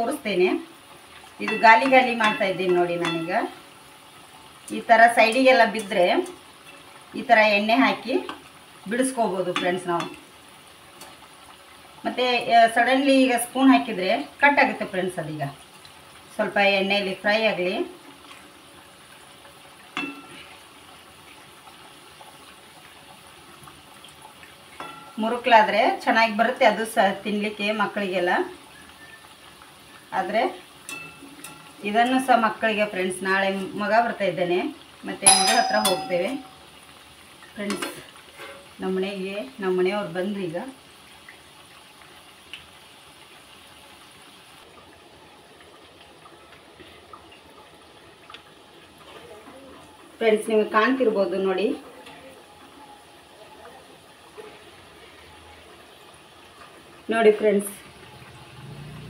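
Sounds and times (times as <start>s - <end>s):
food sizzling in hot oil: 0.0s - 59.0s
spoon clinking against pan: 1.4s - 3.5s, 9.5s - 10.3s, 20.0s - 20.4s, 24.8s - 25.2s, 30.8s - 31.8s, 35.2s - 36.7s.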